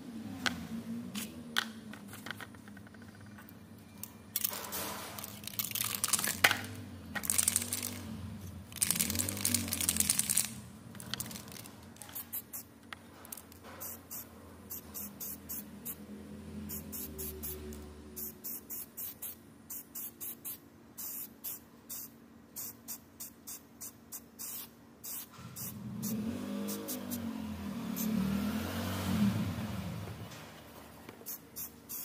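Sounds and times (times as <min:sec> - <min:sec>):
spray can ball rattling: 0:04.3 - 0:08.1, 0:08.7 - 0:16.0, 0:31.2 - 0:32.0
spray paint hissing bursts: 0:05.2 - 0:06.6, 0:07.2 - 0:10.6, 0:11.2 - 0:12.7, 0:13.3 - 0:16.0, 0:16.6 - 0:28.3, 0:31.2 - 0:32.0.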